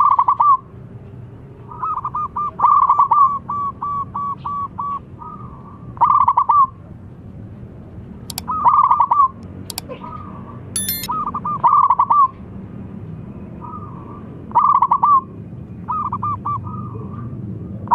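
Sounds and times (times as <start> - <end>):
sharp click: 10.8 - 11.1.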